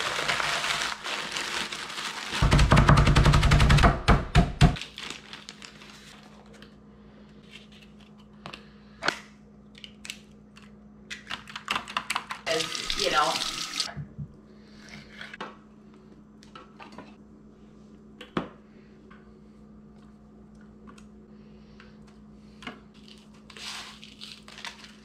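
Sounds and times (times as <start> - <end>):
crackers crunching: 0.0 - 2.5, 4.8 - 6.8, 22.9 - 25.0
plastic bag crinkling: 0.0 - 2.5, 4.8 - 6.6
rapid knocks: 2.4 - 4.8.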